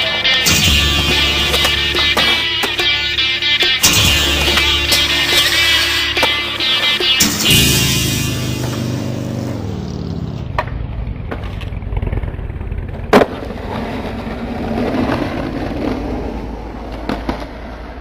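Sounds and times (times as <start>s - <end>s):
skateboard wheels rolling on concrete: 0.0s - 7.2s, 8.6s - 18.0s
skateboard clacks: 0.0s - 7.4s, 10.5s - 11.8s, 12.9s - 18.0s.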